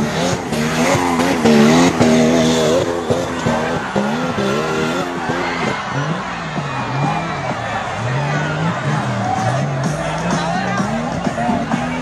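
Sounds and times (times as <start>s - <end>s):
tyres spinning in dirt: 0.0s - 10.2s
off-road vehicle engine revving: 0.0s - 12.0s.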